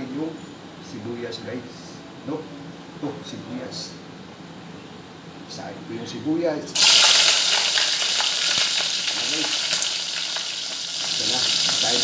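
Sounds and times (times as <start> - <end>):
onions sizzling in hot oil: 6.8 - 12.0.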